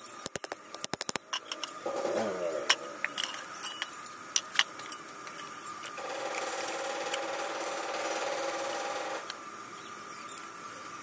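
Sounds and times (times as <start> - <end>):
steady mechanical hum: 0.0 - 11.0
metal tubes clinking on stone: 2.7 - 6.0.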